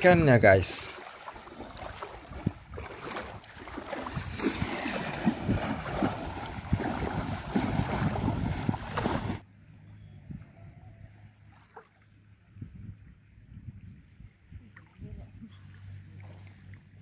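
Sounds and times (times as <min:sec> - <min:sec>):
legs wading through seawater: 0:00.0 - 0:09.4, 0:15.7 - 0:17.0.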